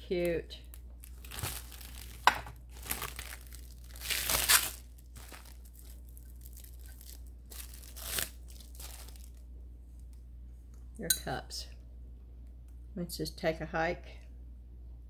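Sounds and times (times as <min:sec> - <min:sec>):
packaging crinkling and rustling: 0:00.7 - 0:09.4.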